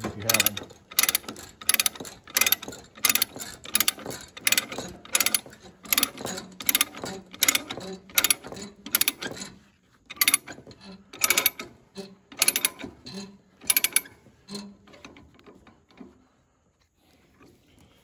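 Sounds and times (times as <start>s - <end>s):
chain ratchet binder clicking: 0.0s - 15.7s.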